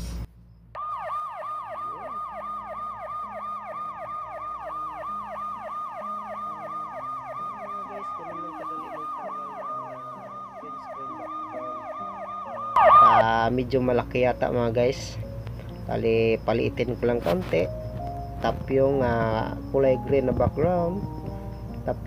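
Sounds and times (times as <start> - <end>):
police siren yelping: 0.8 - 13.4.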